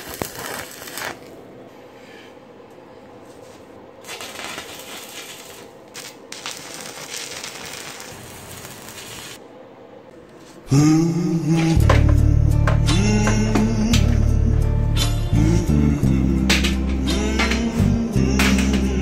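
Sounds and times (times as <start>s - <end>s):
arc welder crackling and hissing: 0.0s - 1.6s, 3.3s - 9.4s, 16.1s - 19.0s
music: 10.7s - 19.0s.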